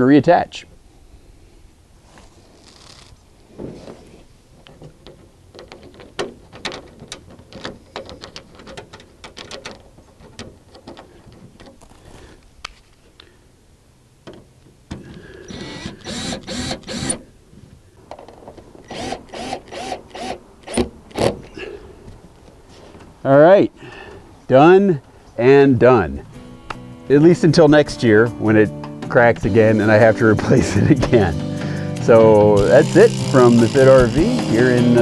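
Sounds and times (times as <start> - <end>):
plastic parts and screws clicking: 4.6 - 12.0
cordless drill pulsing: 15.4 - 17.2, 18.9 - 20.8, 32.6 - 35.0.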